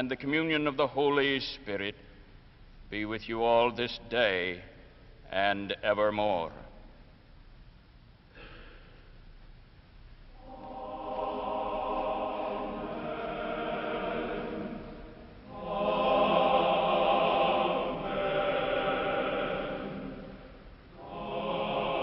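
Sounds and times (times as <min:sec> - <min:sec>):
choir singing held chords: 0:10.3 - 0:22.0.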